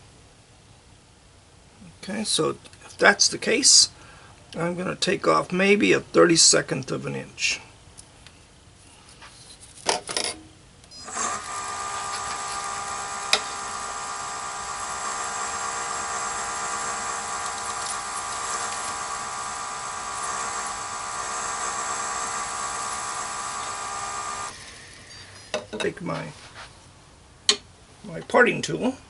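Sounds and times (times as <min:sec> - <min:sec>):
lathe motor whining: 0:11.0 - 0:24.6
turning tool cutting plastic: 0:11.0 - 0:24.6.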